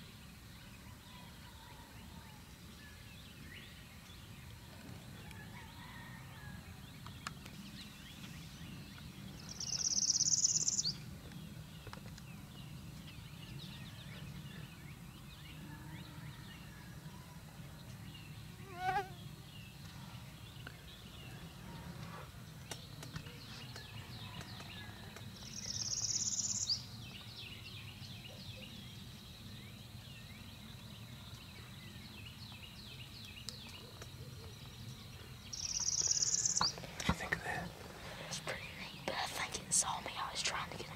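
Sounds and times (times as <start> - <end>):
birds chirping: 7.0 - 16.4, 17.9 - 40.9
insects droning: 35.3 - 40.9.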